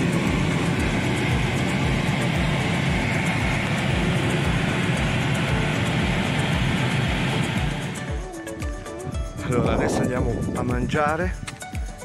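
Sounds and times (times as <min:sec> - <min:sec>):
car road and engine noise: 0:00.0 - 0:08.4.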